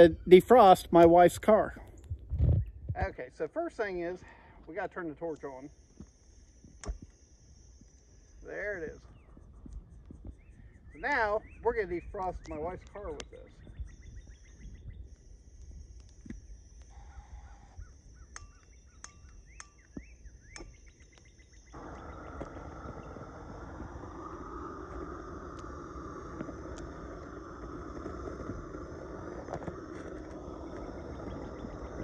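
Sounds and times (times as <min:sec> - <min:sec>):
torch flame hissing: 0:21.7 - 0:32.0.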